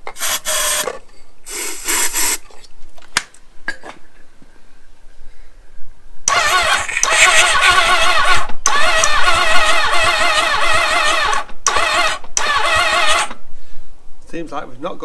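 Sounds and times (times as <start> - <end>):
motorcycle starter whine cranking engine: 0.1 - 0.9, 6.3 - 13.4.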